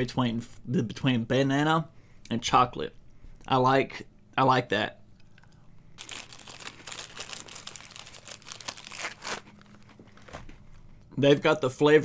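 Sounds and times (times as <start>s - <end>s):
cookie wrapper crinkling: 6.0s - 10.9s.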